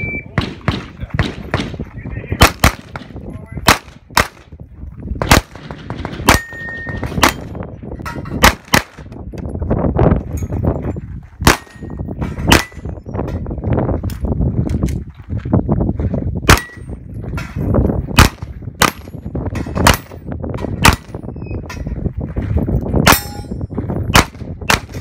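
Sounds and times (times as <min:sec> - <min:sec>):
pistol shots: 0:00.4 - 0:01.8, 0:02.4 - 0:04.5, 0:05.2 - 0:07.6, 0:08.4 - 0:09.0, 0:11.4 - 0:11.9, 0:12.5 - 0:12.8, 0:16.5 - 0:16.8, 0:18.2 - 0:19.1, 0:20.8 - 0:21.2, 0:24.1 - 0:25.0.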